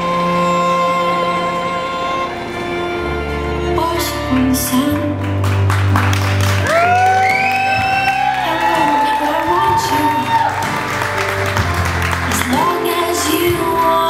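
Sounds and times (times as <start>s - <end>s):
held bowed-string notes: 0.0s - 14.0s
song with bass and beat: 4.2s - 14.0s
person singing: 6.7s - 10.6s, 12.3s - 14.0s.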